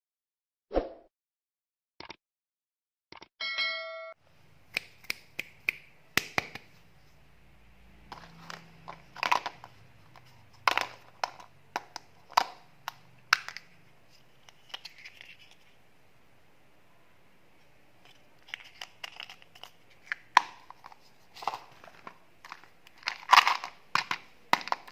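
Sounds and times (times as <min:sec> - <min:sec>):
bell-like chime: 0:03.4 - 0:04.2
plastic case clicking and cracking: 0:08.2 - 0:13.7, 0:18.1 - 0:24.9.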